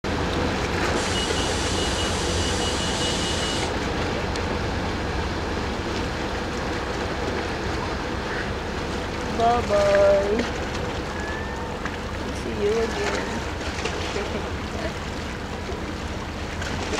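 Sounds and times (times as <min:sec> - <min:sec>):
churning water: 0:00.0 - 0:16.9
ferry diesel engine rumble: 0:00.0 - 0:16.9
hiss with high whistle: 0:01.0 - 0:03.7.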